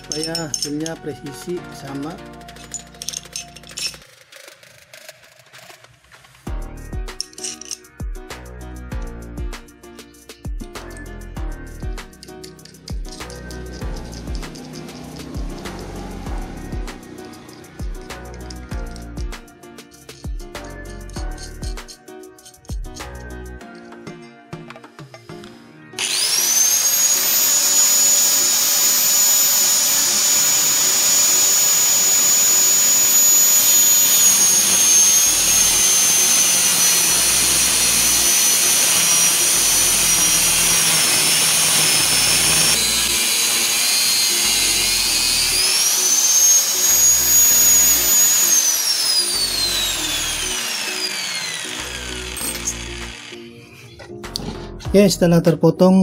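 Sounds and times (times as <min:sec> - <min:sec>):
angle grinder cutting metal: 0:00.0 - 0:01.0, 0:12.2 - 0:19.1, 0:26.0 - 0:54.1.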